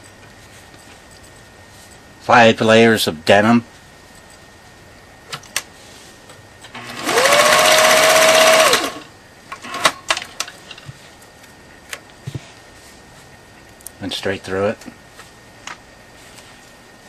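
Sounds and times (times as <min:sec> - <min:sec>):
sewing machine motor whining: 0:06.8 - 0:09.9.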